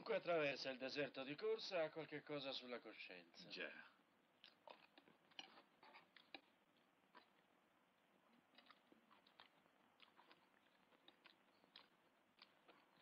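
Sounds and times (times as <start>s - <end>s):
chewing: 3.9s - 13.0s.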